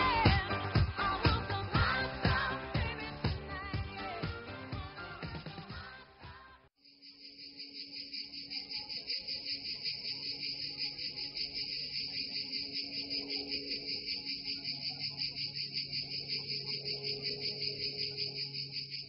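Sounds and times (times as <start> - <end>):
crickets chirping: 6.8 - 19.0.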